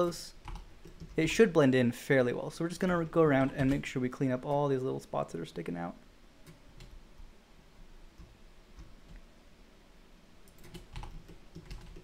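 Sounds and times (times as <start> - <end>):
keyboard and mouse clicks: 0.4 - 1.2, 10.4 - 12.0.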